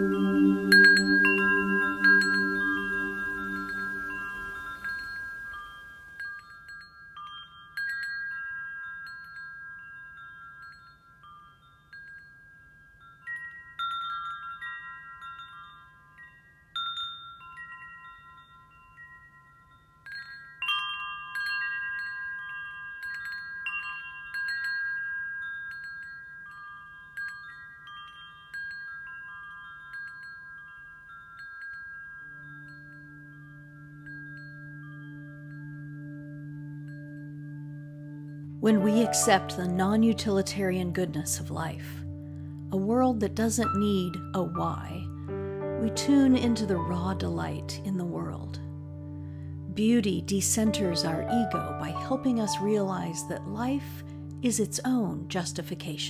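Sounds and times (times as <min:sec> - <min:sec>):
deep ringing tone: 0:00.0 - 0:05.8
metal wind chimes ringing: 0:00.0 - 0:56.0.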